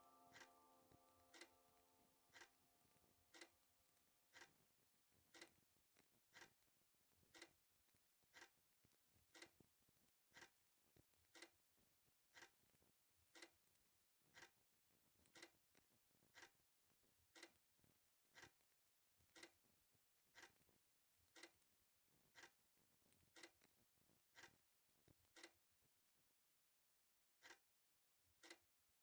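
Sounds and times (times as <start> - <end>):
faint clock ticking: 0.0 - 2.6.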